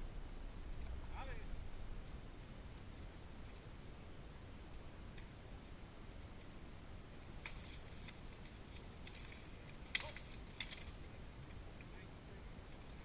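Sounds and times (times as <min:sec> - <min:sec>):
open-air background: 0:00.0 - 0:13.0
metallic clacks of polearms: 0:07.4 - 0:12.0.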